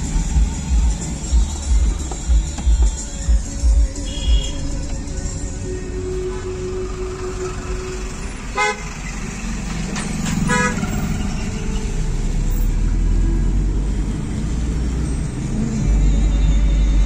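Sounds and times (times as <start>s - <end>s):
car driving rumble: 0.0s - 17.0s
vehicle horn toots: 4.0s - 4.8s, 8.5s - 9.0s, 10.4s - 11.9s.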